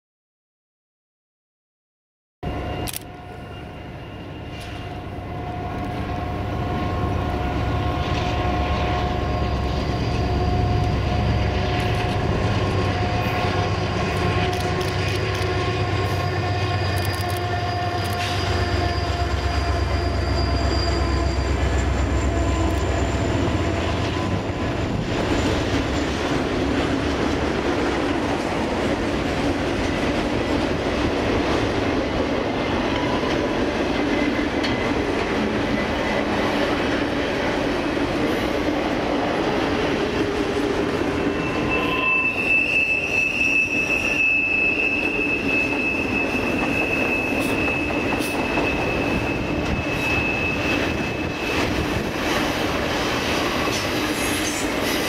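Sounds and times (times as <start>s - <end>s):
freight cars rolling on rails: 2.5s - 55.0s
locomotive engines humming: 2.5s - 55.0s
high wheel squeal: 15.8s - 25.5s, 41.0s - 52.2s, 53.4s - 55.0s.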